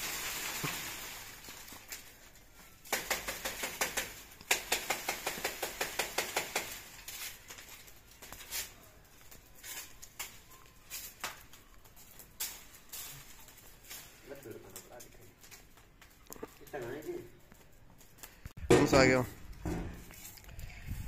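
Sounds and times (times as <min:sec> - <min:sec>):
broom sweeping leaves on concrete: 0:00.0 - 0:02.2, 0:03.4 - 0:15.0.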